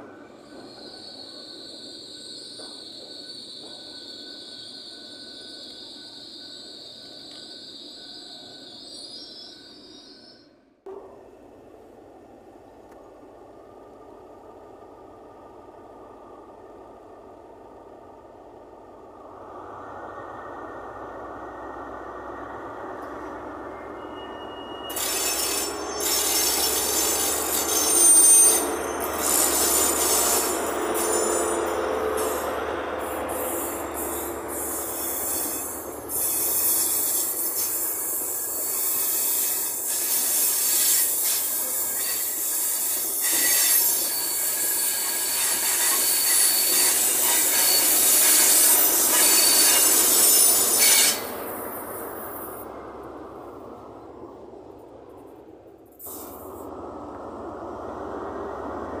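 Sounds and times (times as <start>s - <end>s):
train wheels squealing: 0.0s - 10.7s, 21.6s - 52.8s
rail noise: 0.0s - 59.0s
diesel engine rumble: 11.4s - 24.0s, 51.3s - 59.0s.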